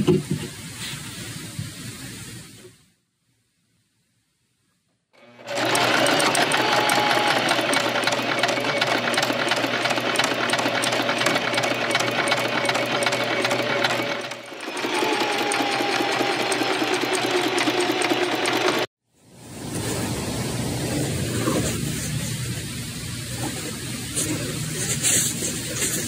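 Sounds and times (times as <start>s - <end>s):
sewing machine stitching: 5.2s - 18.9s.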